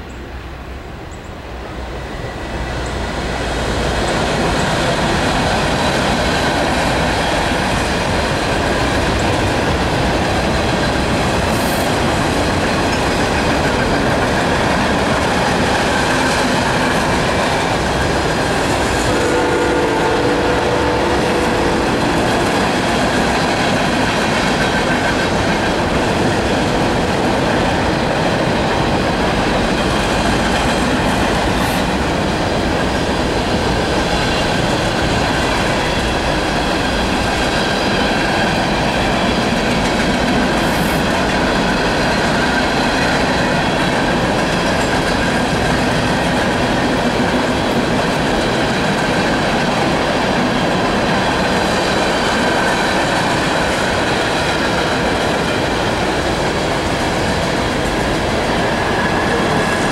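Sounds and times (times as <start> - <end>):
train wheels rumbling on rails: 0.0 - 59.9
train horn: 19.0 - 23.1.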